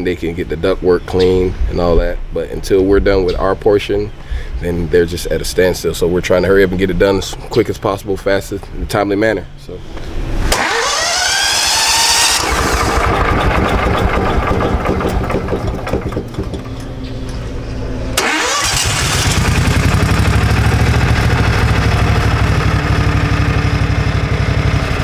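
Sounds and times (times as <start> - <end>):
blower whine: 9.9 - 25.0
gasoline engine running: 10.5 - 25.0.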